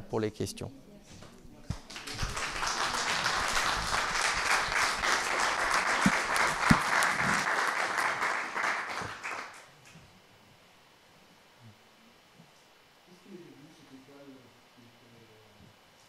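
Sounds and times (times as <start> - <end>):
audience applauding: 1.7 - 9.7.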